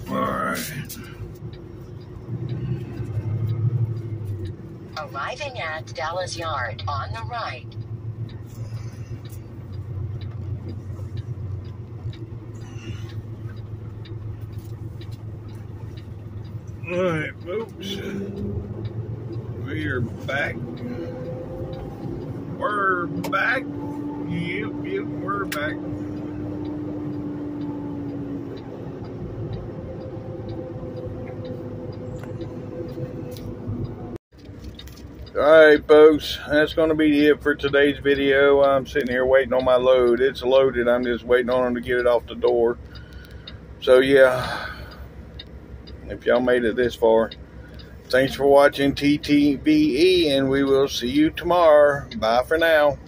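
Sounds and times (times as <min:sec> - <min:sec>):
faint ticking: 0:00.0 - 0:53.0
road noise: 0:00.0 - 0:53.0
truck diesel engine running: 0:00.0 - 0:53.0
faint clicks: 0:36.3 - 0:43.8, 0:44.4 - 0:53.0.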